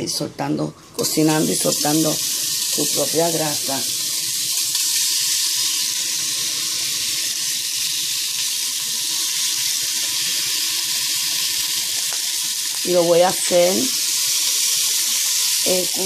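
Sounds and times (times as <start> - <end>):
bacon sizzling in a pot: 0.4 - 16.0.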